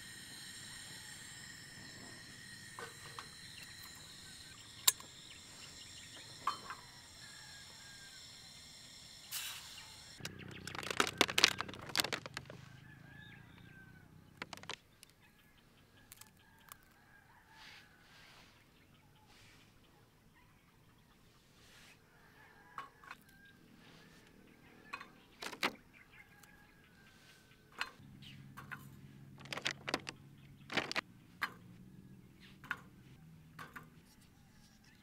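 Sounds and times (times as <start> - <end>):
plastic food tray crinkling: 10.2 - 12.6, 14.4 - 14.8, 25.4 - 25.8, 29.4 - 30.1, 30.7 - 31.0.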